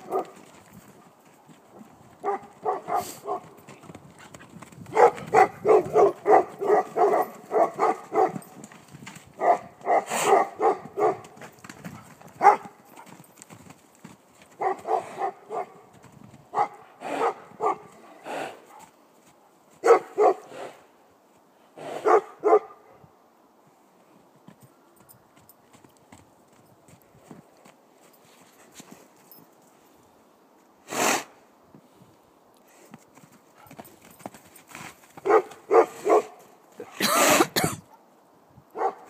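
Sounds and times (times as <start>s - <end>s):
dog barking: 0.0s - 0.4s, 2.2s - 3.4s, 4.9s - 8.4s, 9.4s - 11.3s, 12.4s - 12.8s, 14.6s - 15.8s, 16.5s - 17.9s, 19.8s - 20.5s, 22.0s - 23.0s, 35.2s - 37.1s, 38.8s - 39.0s.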